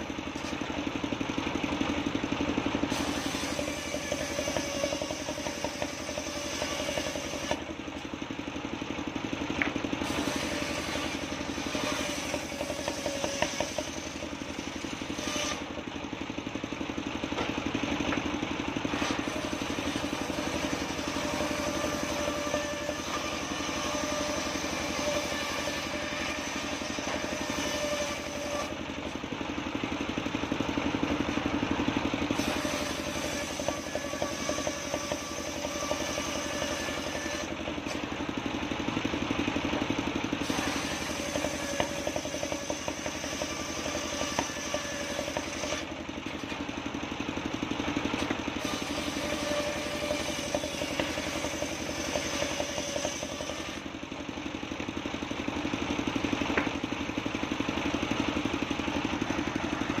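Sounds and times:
table saw humming: 2.8s - 8.1s, 9.6s - 15.7s, 18.8s - 29.4s, 31.4s - 38.2s, 40.3s - 46.6s, 48.1s - 53.9s
saw blade hissing through wood: 2.9s - 7.6s, 10.0s - 15.7s, 32.3s - 37.5s, 40.4s - 45.9s, 48.6s - 53.9s.

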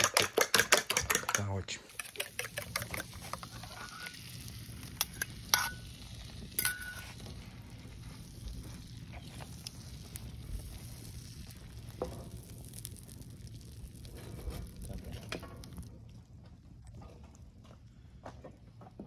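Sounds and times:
kitchenware clinking: 0.0s - 4.2s, 5.0s - 7.3s
low sizzling hiss: 1.2s - 18.1s.

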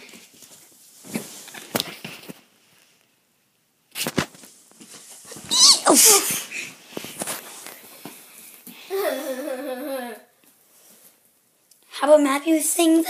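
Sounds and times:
child squealing: 5.5s - 6.4s.

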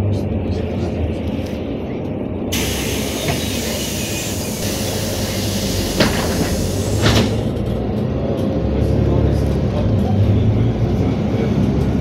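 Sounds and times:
bus engine and road rumble: 0.0s - 12.0s
loud hiss: 2.6s - 7.4s.

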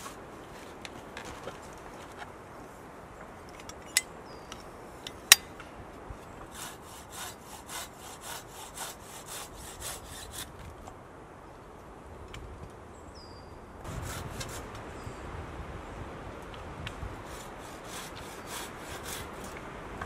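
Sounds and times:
hand saw cutting wood: 6.5s - 10.6s, 13.9s - 14.8s, 17.2s - 19.6s.

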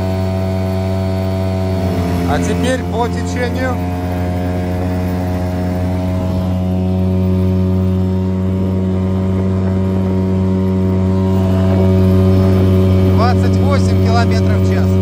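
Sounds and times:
outboard motor running: 0.0s - 15.0s.

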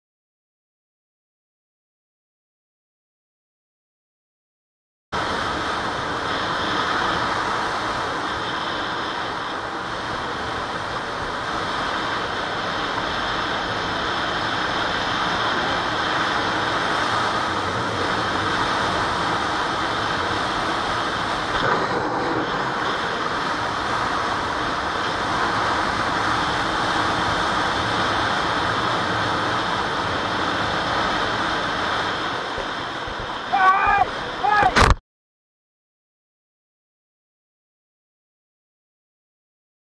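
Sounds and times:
motorcycle road noise: 5.2s - 35.0s
wind rush: 5.2s - 35.0s.

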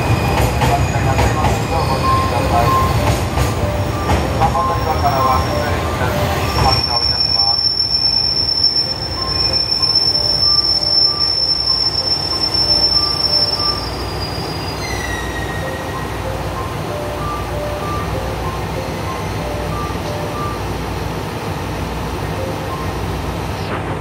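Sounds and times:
train wheels squealing: 0.0s - 16.1s
train engine and rail rumble: 0.0s - 24.0s.

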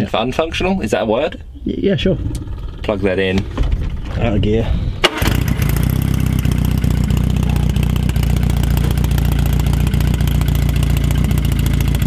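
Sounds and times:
car engine idling: 5.0s - 12.0s.

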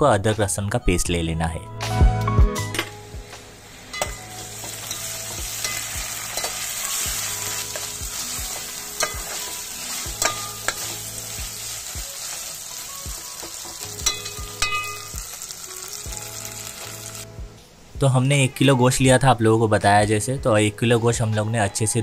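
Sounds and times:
paste sizzling in hot oil: 3.2s - 17.3s
metal spatula scraping pot: 3.9s - 11.8s.

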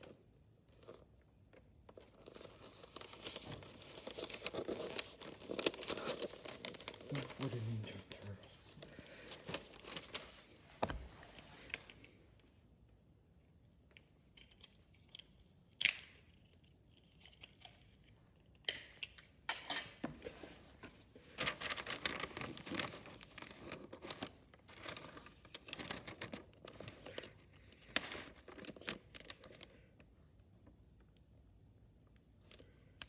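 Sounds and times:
wrapping paper crinkling: 1.9s - 10.5s, 21.2s - 30.0s.

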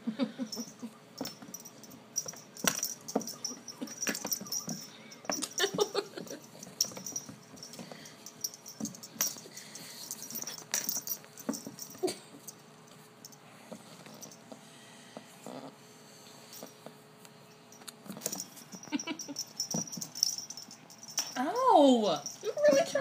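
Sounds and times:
collar bell jingling: 0.4s - 14.5s, 17.5s - 23.0s.

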